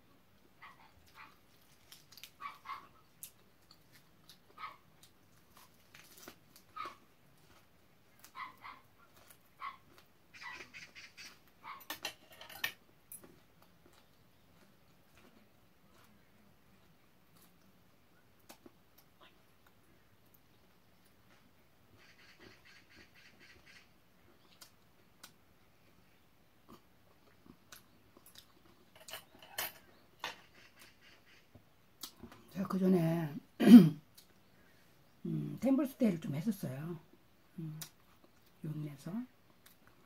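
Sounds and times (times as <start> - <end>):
person chewing food: 0.4 - 10.2, 12.8 - 21.6, 24.2 - 26.0, 26.6 - 29.0, 31.5 - 32.5.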